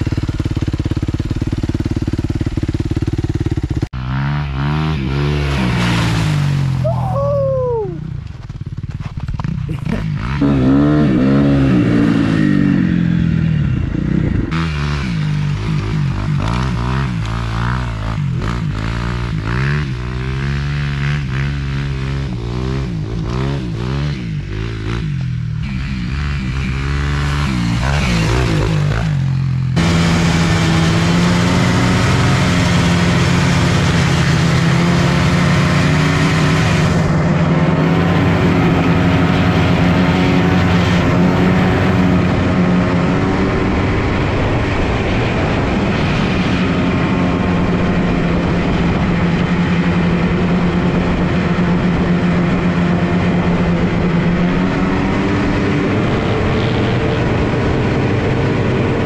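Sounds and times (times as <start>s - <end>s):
vehicle engine revving high: 25.6s - 59.0s.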